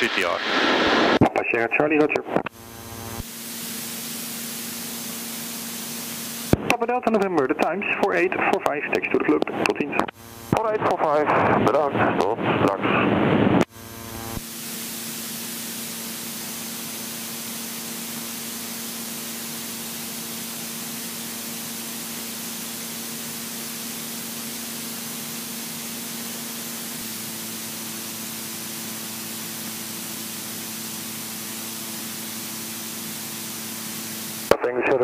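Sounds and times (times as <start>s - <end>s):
intercom hiss: 0.0s - 2.3s.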